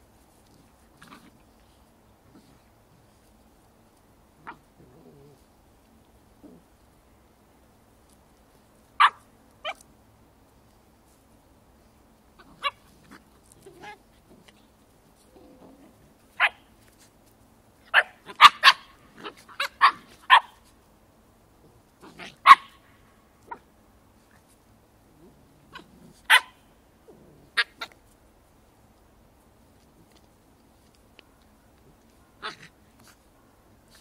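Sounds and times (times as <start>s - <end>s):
puppies barking and yipping: 12.4s - 14.3s, 16.2s - 17.0s, 17.9s - 20.7s, 22.0s - 22.8s, 25.7s - 26.7s, 27.5s - 28.0s.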